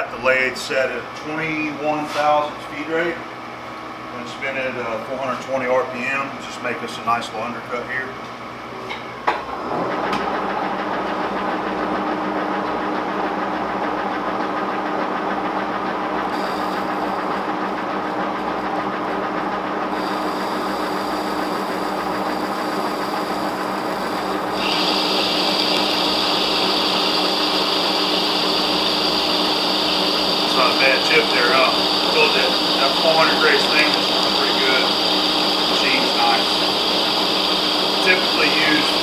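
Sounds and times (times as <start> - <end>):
lathe running with gears whining: 9.6 - 39.0
cutting tool hissing on steel: 19.9 - 21.8, 22.4 - 39.0.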